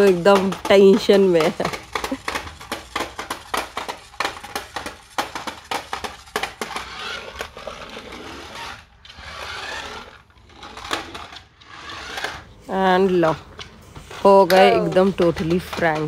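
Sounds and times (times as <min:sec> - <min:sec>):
toy car plastic clicks: 0:00.0 - 0:12.4
small motor whirring: 0:00.0 - 0:13.4.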